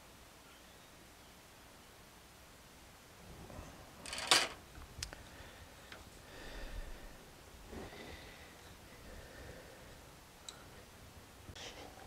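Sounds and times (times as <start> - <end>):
tools clattering: 4.0 - 4.6.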